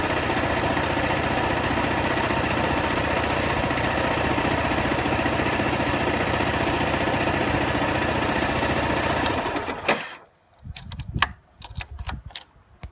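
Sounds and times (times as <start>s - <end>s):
motorcycle engine idling: 0.0s - 9.8s
sharp clicks and knocks: 9.2s - 12.9s.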